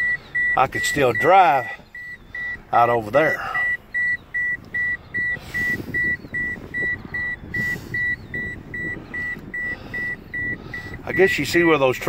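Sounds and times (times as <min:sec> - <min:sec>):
vehicle warning chime beeping: 0:00.0 - 0:12.0
low rumble: 0:03.8 - 0:11.1.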